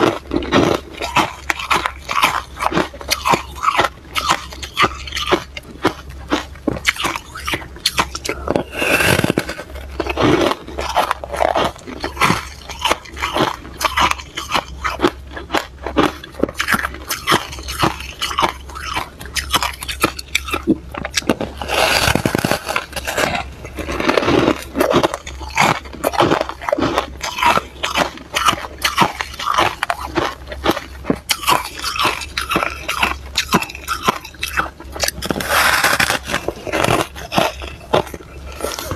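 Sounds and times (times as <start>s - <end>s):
frost being bitten and chewed: 0.0s - 38.9s.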